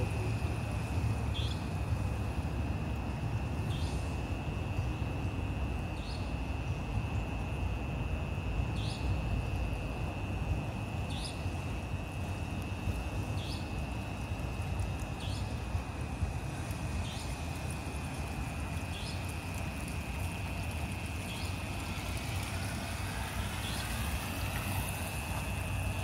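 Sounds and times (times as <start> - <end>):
outdoor background rumble: 0.0 - 26.0.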